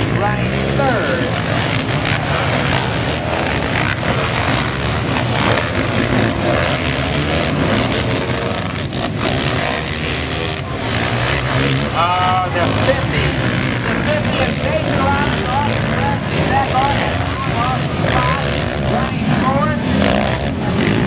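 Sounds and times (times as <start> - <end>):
quad engines racing: 0.0 - 21.0.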